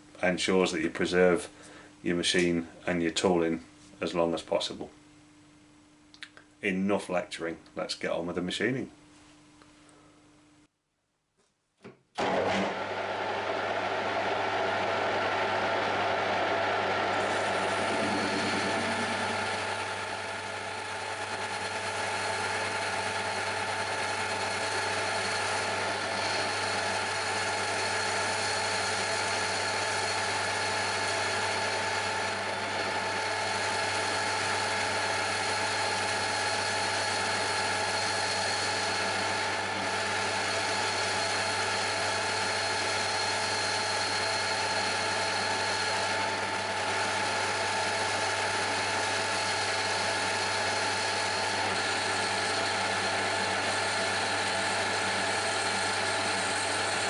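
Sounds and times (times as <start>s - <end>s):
metal lathe humming and whining: 13.6s - 57.0s.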